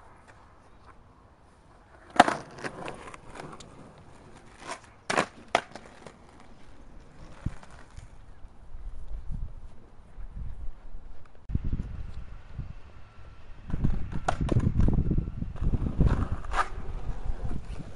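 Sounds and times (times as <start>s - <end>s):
skateboard knocks and scrapes: 1.8s - 8.3s, 13.7s - 17.9s
skateboard clacking on pavement: 1.9s - 8.2s.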